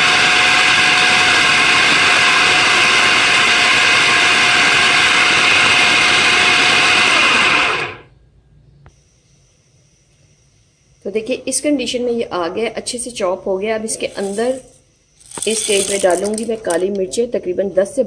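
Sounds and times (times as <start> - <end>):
food processor running: 0.0 - 8.1.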